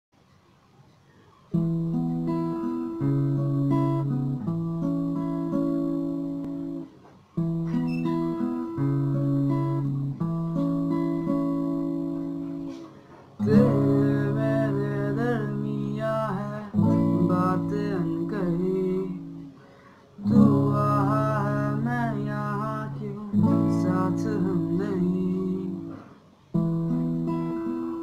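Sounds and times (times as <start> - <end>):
acoustic guitar strumming: 1.5 - 28.0
man singing: 13.4 - 19.5, 20.2 - 26.1.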